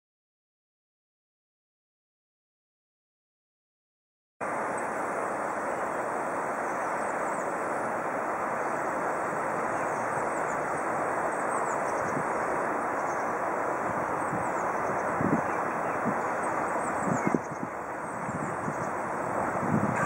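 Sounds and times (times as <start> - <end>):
flowing river water: 4.4 - 20.0.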